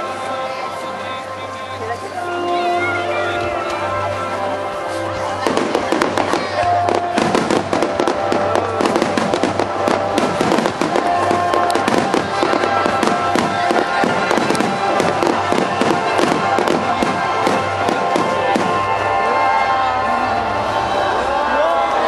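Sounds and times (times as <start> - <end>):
music playing: 0.0 - 22.0
firework shells bursting and crackling: 5.5 - 19.0.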